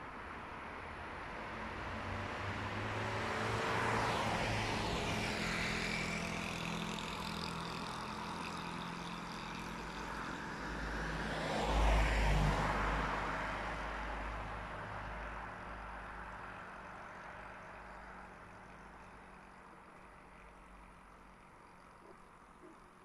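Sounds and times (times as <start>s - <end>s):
cars driving past: 0.6s - 23.0s
car engine rumble passing close: 2.0s - 23.0s
motor scooter passing: 2.4s - 13.7s.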